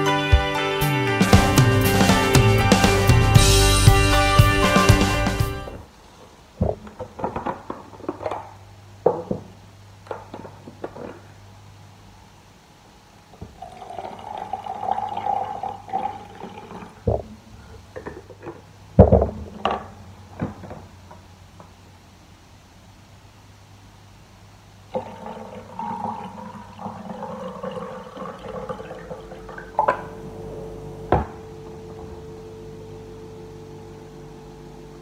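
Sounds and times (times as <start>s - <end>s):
water pouring into a mug: 13.6s - 17.0s, 24.9s - 29.9s.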